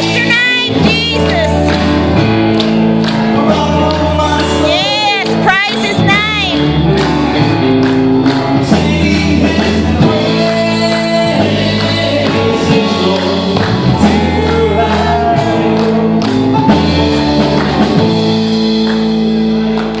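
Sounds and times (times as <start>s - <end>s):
gospel band playing: 0.0s - 20.0s
voices singing: 3.1s - 17.6s.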